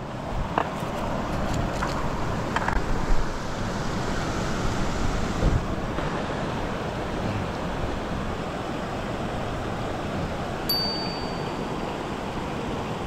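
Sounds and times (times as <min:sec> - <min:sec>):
wind buffeting microphone: 0:00.3 - 0:10.7.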